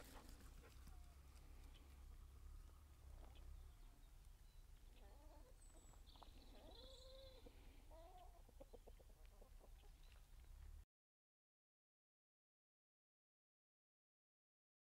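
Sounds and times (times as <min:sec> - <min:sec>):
chickens clucking: 0:00.0 - 0:10.7.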